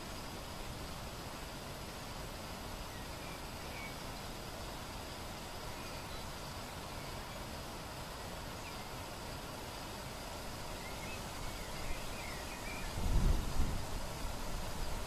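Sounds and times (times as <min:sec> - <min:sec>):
steady background hiss: 0:00.0 - 0:15.0
faint bird chirps: 0:02.9 - 0:04.8, 0:05.7 - 0:07.6, 0:10.7 - 0:13.2.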